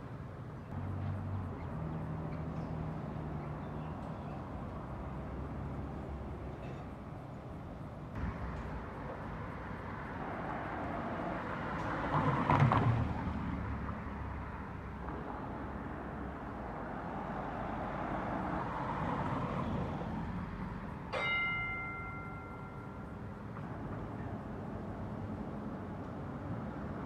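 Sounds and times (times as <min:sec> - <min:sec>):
street traffic: 0:00.0 - 0:27.0
tram rolling on track: 0:00.1 - 0:27.0
bell ringing: 0:21.1 - 0:23.2.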